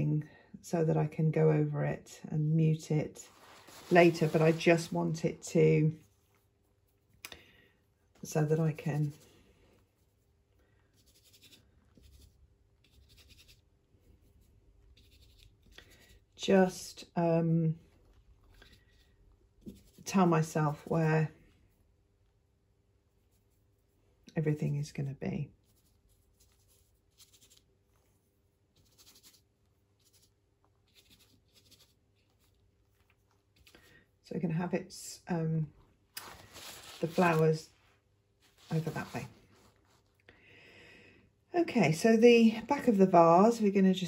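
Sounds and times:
brush strokes on canvas: 0:03.0 - 0:05.4, 0:23.0 - 0:24.0, 0:36.2 - 0:40.2
paintbrush scratching on canvas: 0:03.0 - 0:07.2, 0:08.2 - 0:16.5, 0:18.5 - 0:21.8, 0:23.0 - 0:33.7, 0:38.4 - 0:40.2.

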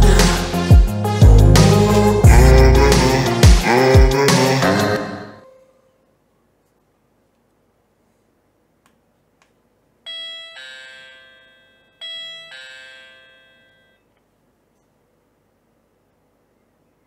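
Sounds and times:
doorbell ding-dong chime: 0:10.1 - 0:14.1.

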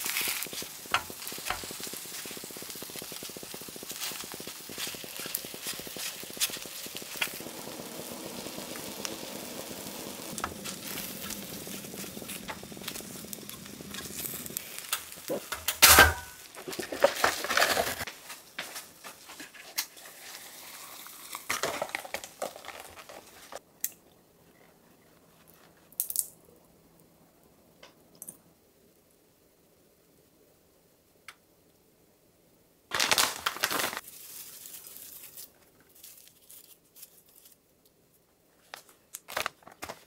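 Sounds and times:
foil lid crinkling: 0:00.0 - 0:07.5, 0:10.3 - 0:23.6, 0:32.9 - 0:37.6, 0:38.7 - 0:40.0
food sizzling in a pan: 0:00.0 - 0:23.6, 0:33.0 - 0:36.3.

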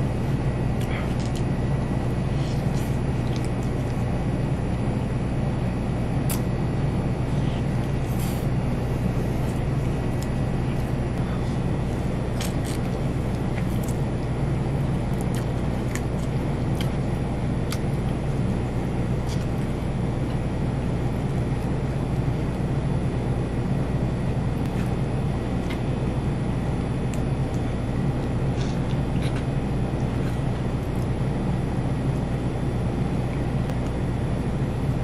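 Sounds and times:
low background hum: 0:00.0 - 0:35.0
fried chicken being chewed: 0:00.6 - 0:04.8, 0:07.4 - 0:20.5, 0:27.0 - 0:31.2.

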